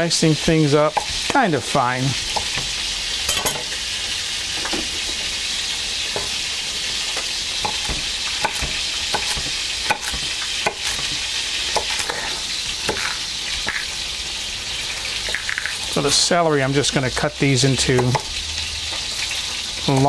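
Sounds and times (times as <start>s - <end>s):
meat sizzling in oil: 0.0s - 20.0s
knife chopping on wooden board: 0.9s - 1.4s, 2.3s - 2.8s, 7.6s - 13.2s.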